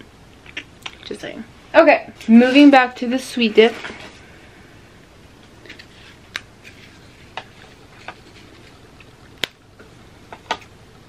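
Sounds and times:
cracker snapping: 7.3 - 9.6.

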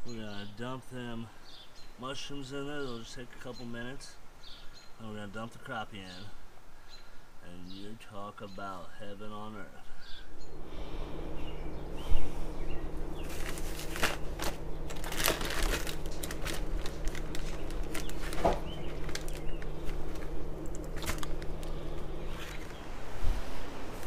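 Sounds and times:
steady low hum: 9.8 - 24.0
plastic bag crinkling: 13.0 - 22.9.

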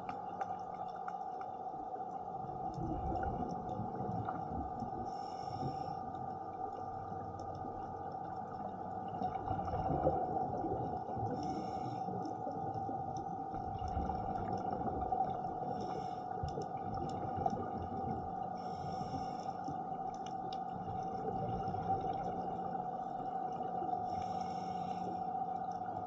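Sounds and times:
low rumbling water: 0.0 - 26.0
steady hum: 0.0 - 26.0
scuba regulator breath hiss: 11.4 - 12.1, 18.6 - 19.6.

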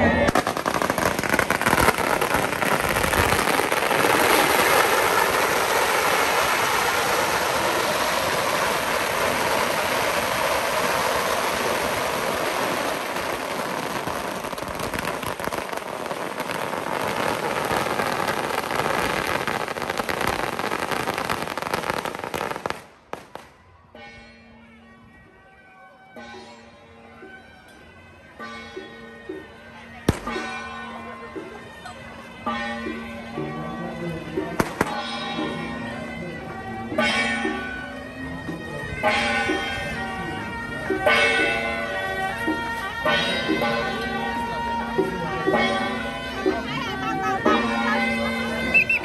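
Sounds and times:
firecrackers crackling: 0.0 - 23.6, 30.1 - 30.6, 34.4 - 35.5, 38.6 - 49.0.

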